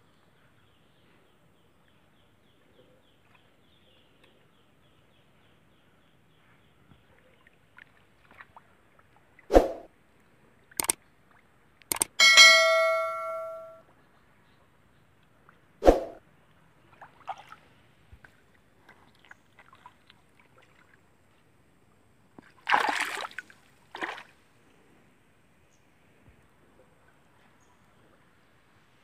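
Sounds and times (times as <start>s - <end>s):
bell chime: 12.2s - 13.8s
otters splashing in water: 22.6s - 24.3s.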